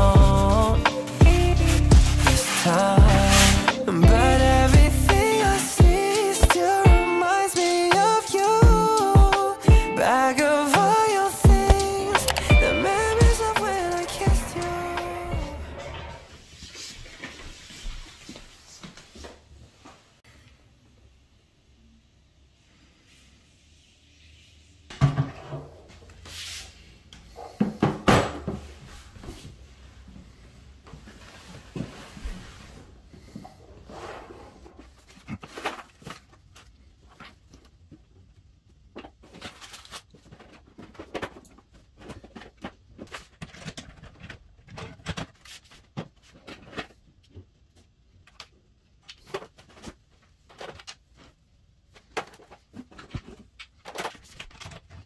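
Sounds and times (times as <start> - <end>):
objects clattering: 10.9 - 16.3.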